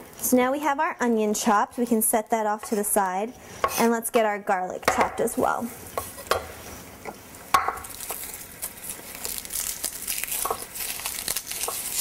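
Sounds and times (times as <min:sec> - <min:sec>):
scallops sizzling in a pan: 0:05.8 - 0:12.0.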